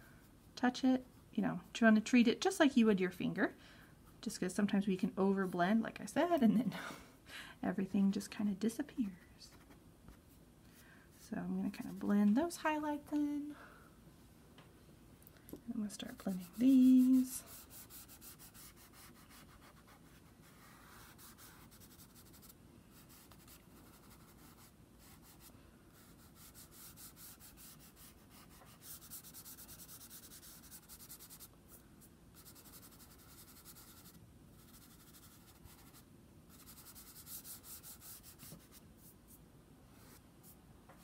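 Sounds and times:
fingertips rubbing pastel on paper: 0:16.0 - 0:31.5, 0:32.3 - 0:39.4.

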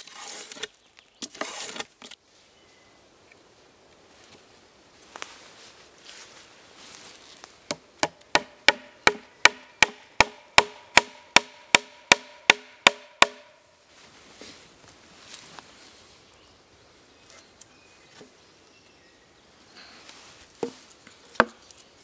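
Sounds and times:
wooden stake knocks: 0:07.7 - 0:13.5, 0:21.4 - 0:21.6.

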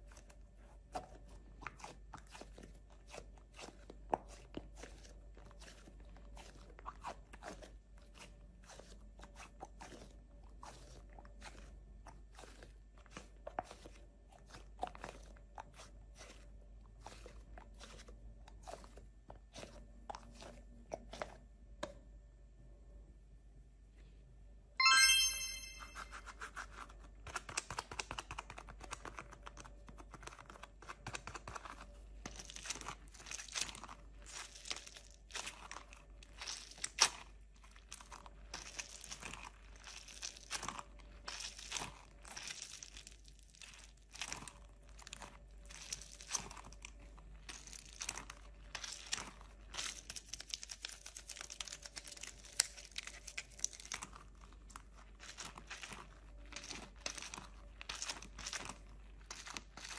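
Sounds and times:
short ringing tone: 0:24.8 - 0:26.2
crackling and crinkling clicks: 0:27.3 - 0:59.9.

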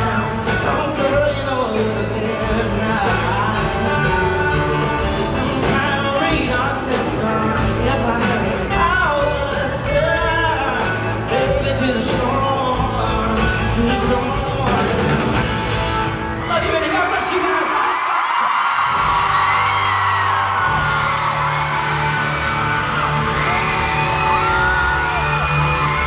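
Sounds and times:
man singing: 0:00.0 - 0:15.4
live country pop band: 0:00.0 - 0:17.4, 0:18.7 - 0:26.0.

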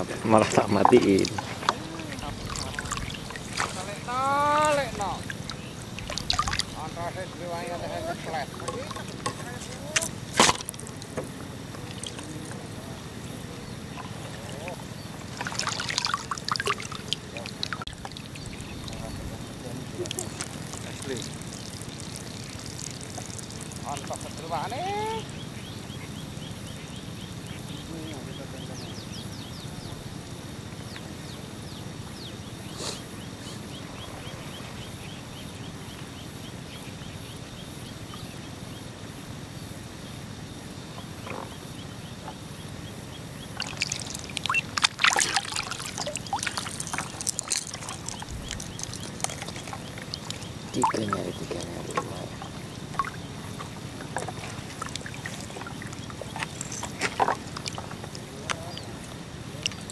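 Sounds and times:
water splashing and sloshing: 0:00.0 - 0:28.2, 0:40.9 - 0:59.9
steady low hiss: 0:00.0 - 0:59.9.

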